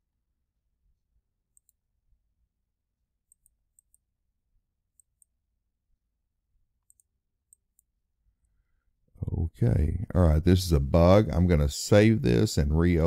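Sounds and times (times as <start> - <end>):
computer mouse clicks: 1.5 - 1.8, 3.2 - 4.1, 4.9 - 5.4, 6.8 - 8.6.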